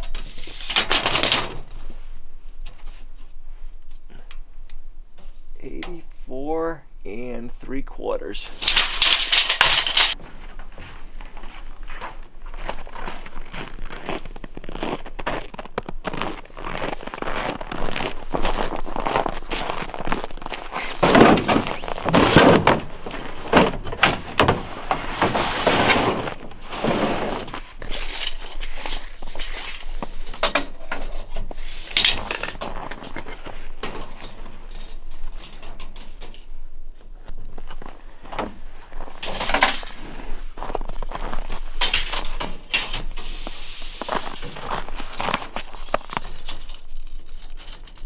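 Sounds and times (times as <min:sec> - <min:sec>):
panel knocks scrapes and rustles: 0:20.9 - 0:27.6.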